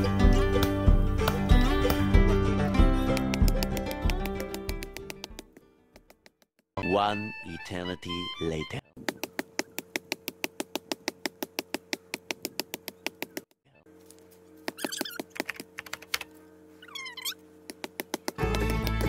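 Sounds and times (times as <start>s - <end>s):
guitar music: 0.0s - 5.3s, 18.4s - 19.0s
blade chopping tree trunk: 3.0s - 5.5s, 9.0s - 13.4s, 17.7s - 19.0s.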